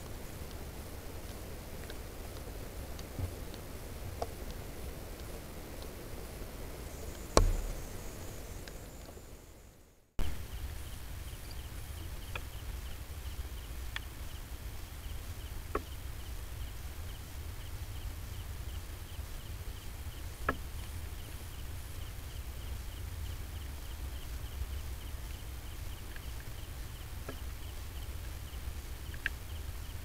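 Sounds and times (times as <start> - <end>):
steady low rumble: 0.0 - 13.6
insect chirping: 4.3 - 30.0
sharp single clicks: 7.1 - 8.0.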